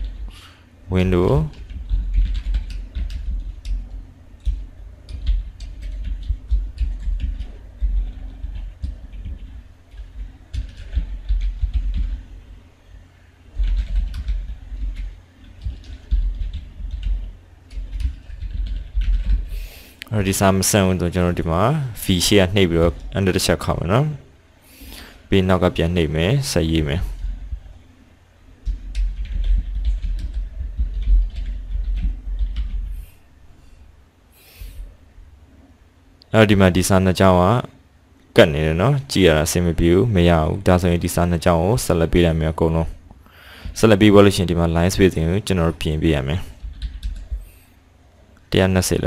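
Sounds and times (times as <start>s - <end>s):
typing on computer keyboard: 1.4s - 12.2s, 13.5s - 19.5s, 28.6s - 33.0s, 46.6s - 47.4s.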